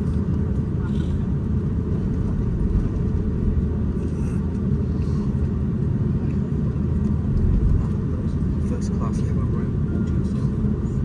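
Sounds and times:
aircraft cabin rumble: 0:00.0 - 0:11.0.

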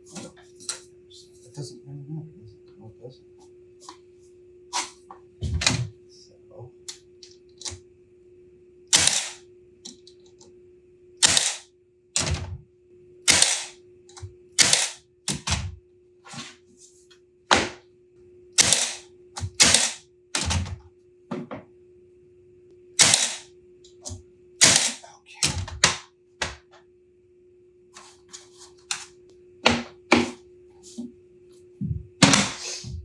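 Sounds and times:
nailer firing brads into wood: 0:08.9 - 0:09.4, 0:11.2 - 0:11.6, 0:13.3 - 0:13.8, 0:14.6 - 0:15.7, 0:18.6 - 0:20.7, 0:23.0 - 0:23.4, 0:24.6 - 0:26.0.

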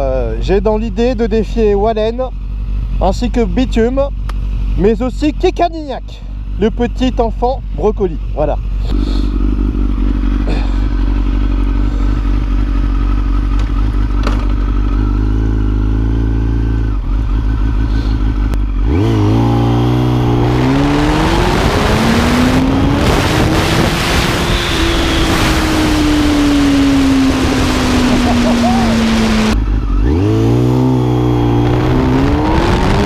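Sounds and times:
motorcycle engine revving: 0:06.2 - 0:33.0
wind noise: 0:20.5 - 0:29.6, 0:31.5 - 0:33.0.

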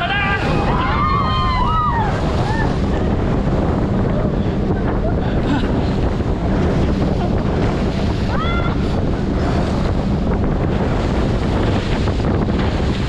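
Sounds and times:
rushing water: 0:00.0 - 0:13.0
wind buffeting microphone: 0:00.0 - 0:13.0.

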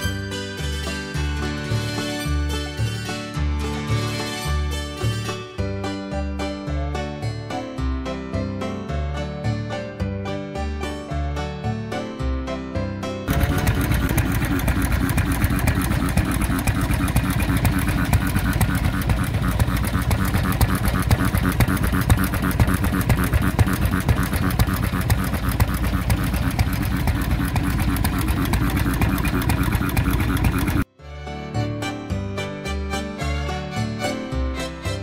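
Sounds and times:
stationary gas engine running: 0:13.3 - 0:30.9.

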